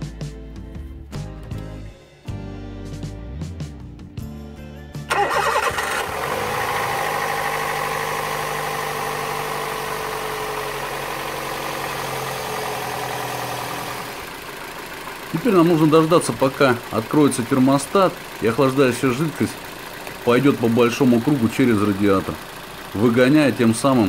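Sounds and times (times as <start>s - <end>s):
guitar music: 0.0s - 9.3s
car engine starting and idling: 5.0s - 24.0s.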